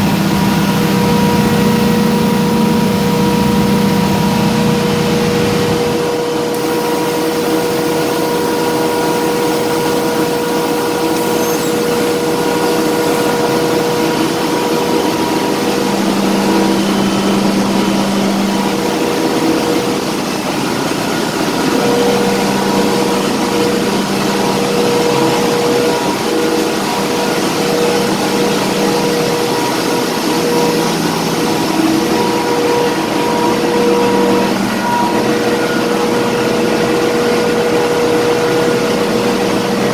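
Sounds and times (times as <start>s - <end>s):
engine room machinery running: 0.0s - 39.9s
low hum: 0.0s - 39.9s.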